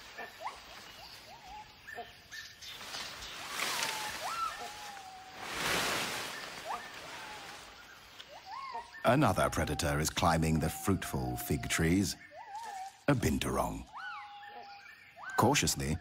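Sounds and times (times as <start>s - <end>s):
rustling leaves and branches: 0.0s - 10.4s, 11.8s - 16.0s
gibbons whooping: 3.8s - 5.5s, 6.5s - 13.0s.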